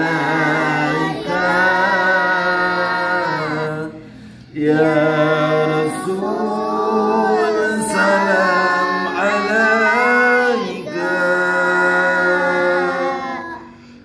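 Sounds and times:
man and boys chanting: 0.0 - 14.0.

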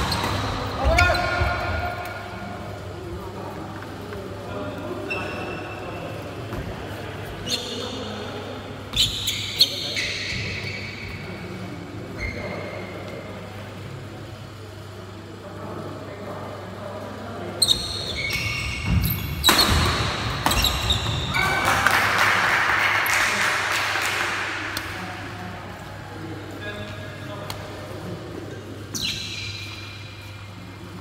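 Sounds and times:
shoes squeaking on floor: 0.0 - 1.7, 5.0 - 5.7, 7.4 - 8.0, 12.2 - 12.6, 17.6 - 21.5, 28.9 - 30.0.

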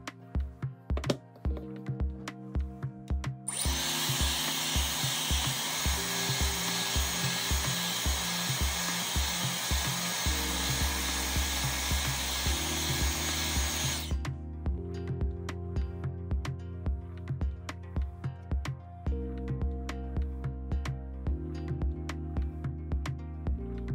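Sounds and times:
hair dryer blowing: 3.5 - 14.2.

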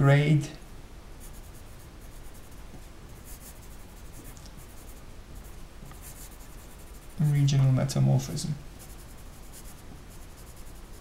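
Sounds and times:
pencil scratching on paper: 1.2 - 2.6, 3.2 - 7.3, 8.8 - 11.0.

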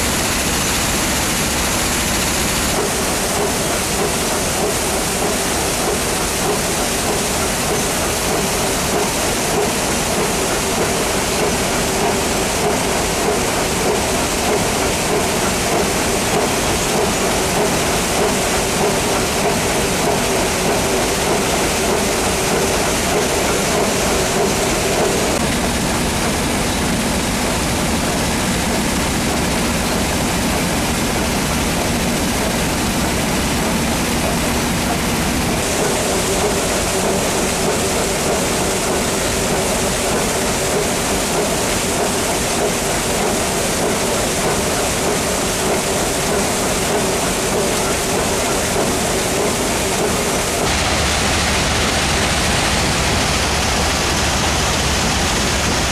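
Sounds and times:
water spraying: 35.0 - 55.9.

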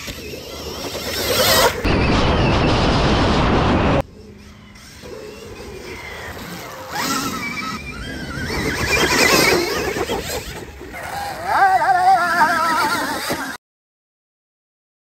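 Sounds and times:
electric motorbike motor whining: 0.0 - 1.9, 4.2 - 13.6
wind rushing: 1.4 - 4.0.

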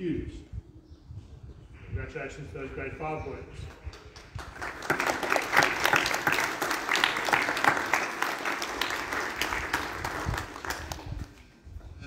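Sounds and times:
audience applauding: 3.9 - 11.4.

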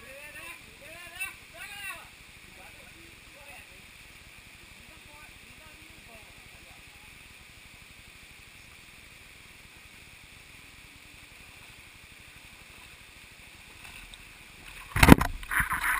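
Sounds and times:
shallow stream rushing: 0.0 - 15.9
person wading through water: 12.5 - 15.9.

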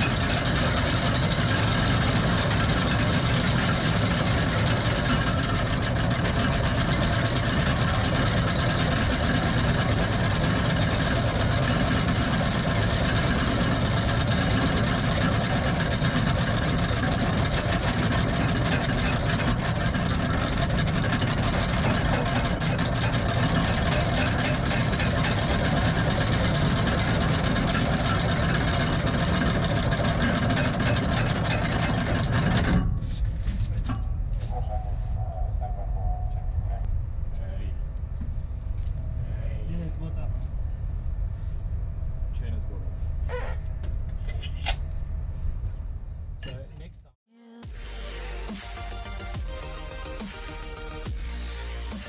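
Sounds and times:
anchor windlass paying out chain: 0.0 - 35.8.

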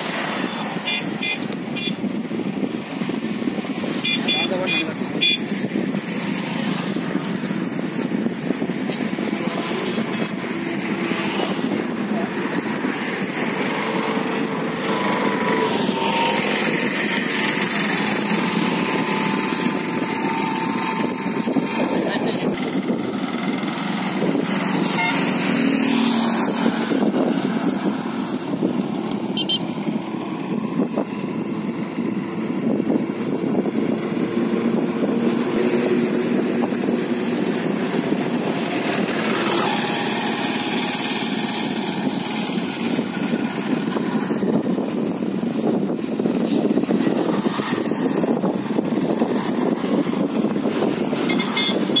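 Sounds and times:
motorcycles passing: 0.0 - 52.0
steady rushing noise: 0.0 - 52.0.

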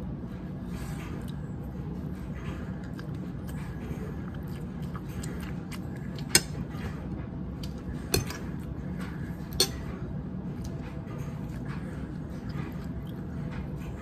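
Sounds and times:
fork clinking on ceramic plate: 9.5 - 9.9.

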